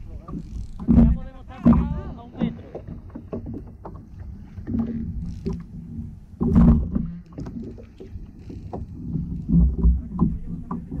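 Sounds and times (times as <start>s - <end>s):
water slapping plastic hull: 0.0s - 11.0s.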